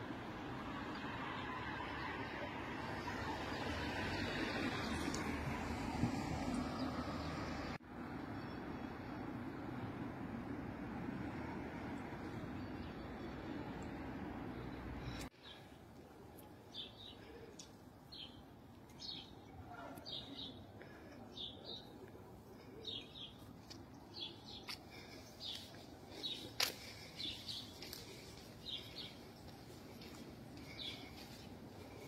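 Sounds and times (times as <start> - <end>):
small birds chirping: 12.0 - 32.0.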